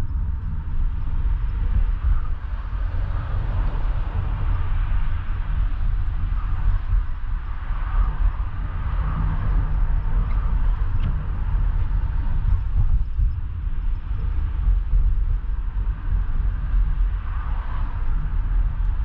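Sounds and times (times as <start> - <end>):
car engine and tyres rumbling: 0.0 - 19.0.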